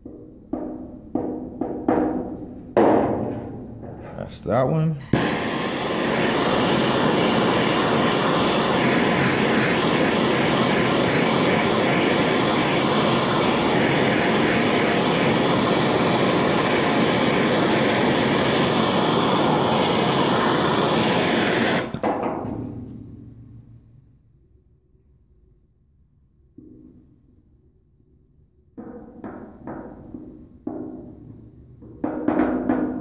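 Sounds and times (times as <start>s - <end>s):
gas torch flame hissing: 4.1s - 22.1s.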